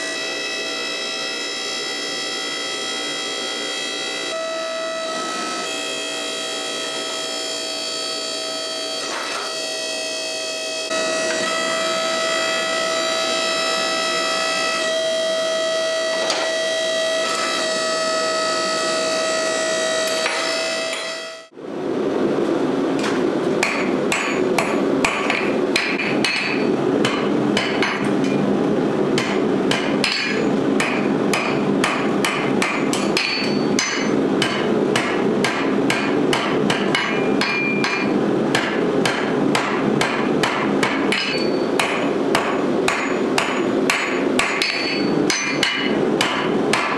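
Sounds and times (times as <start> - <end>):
hammer striking steel on anvil: 23.0 - 28.4, 29.2 - 46.9.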